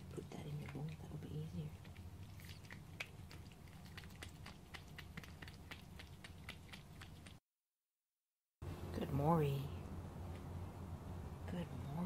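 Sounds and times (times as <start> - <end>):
cat chewing wet food: 0.0 - 7.4.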